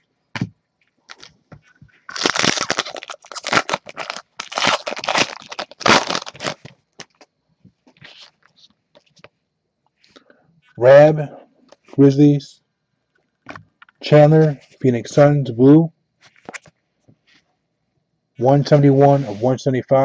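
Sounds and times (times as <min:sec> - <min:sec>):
foil wrapper crinkling: 0:01.0 - 0:07.3.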